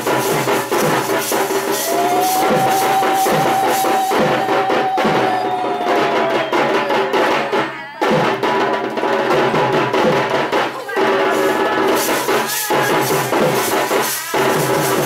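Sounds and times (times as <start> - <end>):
drum-led music: 0.0 - 15.0
long held note: 1.9 - 7.7.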